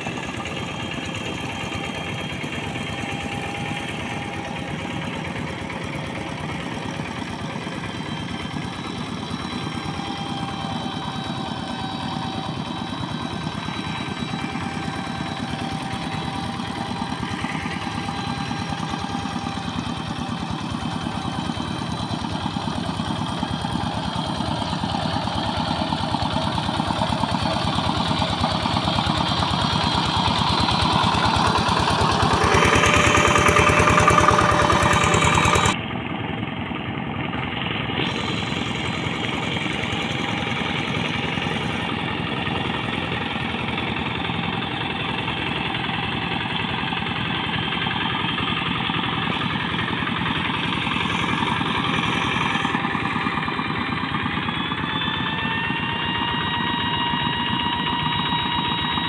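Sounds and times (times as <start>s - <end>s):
diesel engine running under load: 0.0s - 59.0s
wheels churning through mud: 19.2s - 35.8s.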